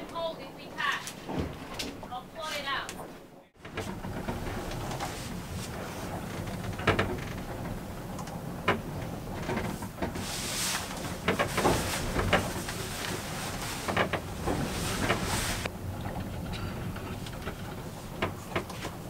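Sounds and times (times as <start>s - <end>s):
clicks and knocks of handling: 16.0s - 19.0s.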